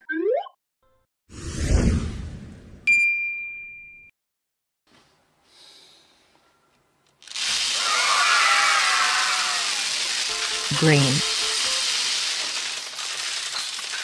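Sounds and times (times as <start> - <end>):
bell-like ding: 2.9 - 4.1
plastic beads pouring onto table: 7.2 - 14.0.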